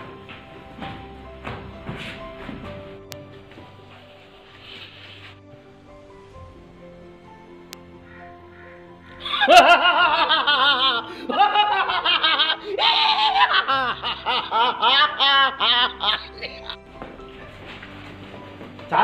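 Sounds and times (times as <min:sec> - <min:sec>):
soft background music: 0:00.0 - 0:19.0
man laughing loudly: 0:09.2 - 0:16.8.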